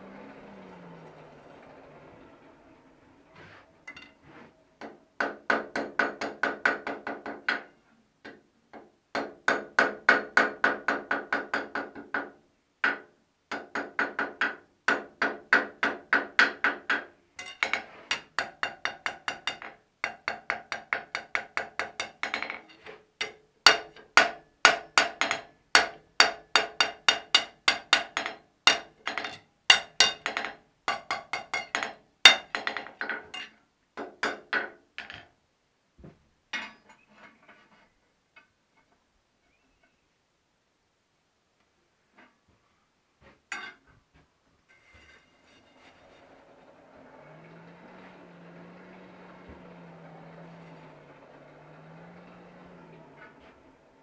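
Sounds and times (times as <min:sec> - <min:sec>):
hammer striking iron on anvil: 0:12.8 - 0:22.6, 0:23.2 - 0:35.2.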